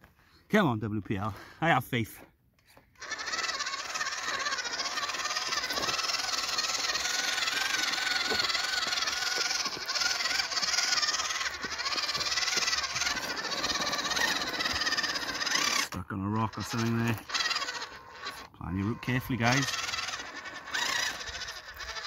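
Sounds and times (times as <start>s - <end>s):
electric motor and gearbox whining: 2.7s - 22.0s
tyres clicking on loose stones: 3.0s - 18.5s.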